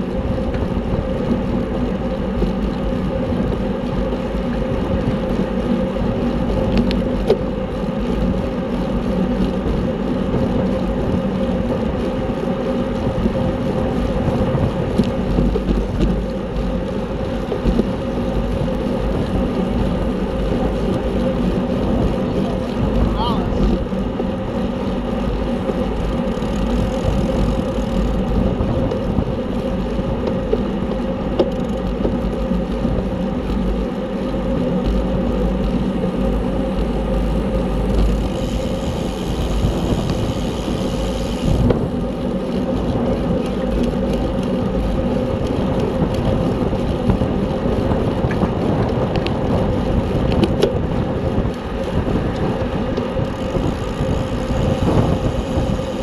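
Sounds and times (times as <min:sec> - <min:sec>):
heavy low rumble: 0:00.0 - 0:56.0
whir of bicycle tyres and drivetrain: 0:00.0 - 0:56.0.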